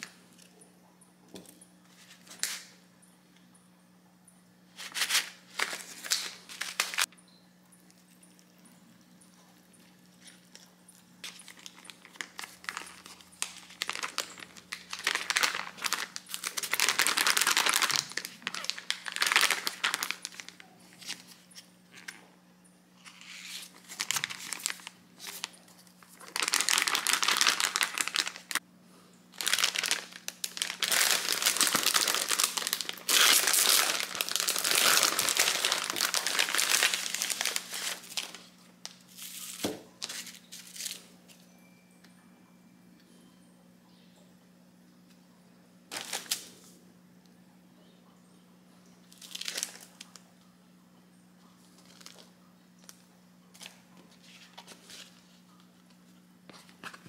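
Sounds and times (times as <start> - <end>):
plastic pouch crinkling: 4.8 - 7.1, 9.8 - 22.2, 23.0 - 28.6, 29.3 - 41.0, 45.9 - 46.5, 49.1 - 50.2, 51.6 - 53.0.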